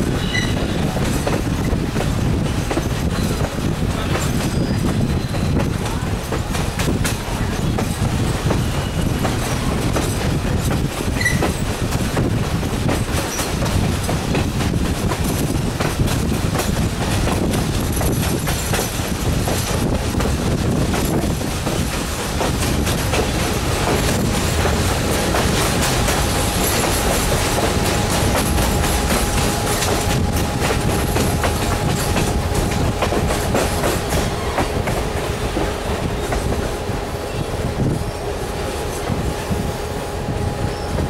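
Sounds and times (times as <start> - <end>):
clickety-clack of rail joints: 0.0 - 41.0
train wheels rumbling on rails: 0.0 - 41.0
high wheel squeal: 4.3 - 5.8.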